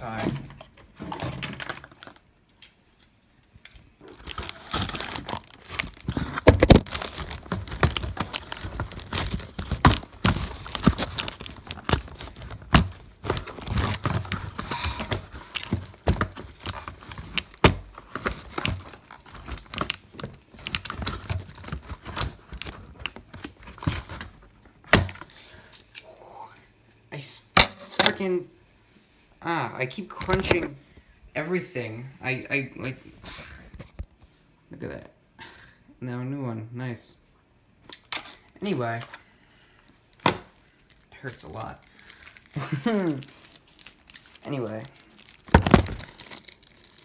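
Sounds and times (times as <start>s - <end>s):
packaging crunching and crinkling: 0.0s - 2.3s, 4.0s - 25.4s, 40.1s - 47.0s.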